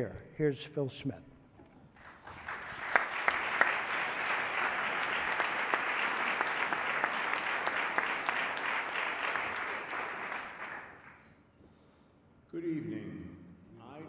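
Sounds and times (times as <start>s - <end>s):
audience applauding: 2.0s - 11.2s.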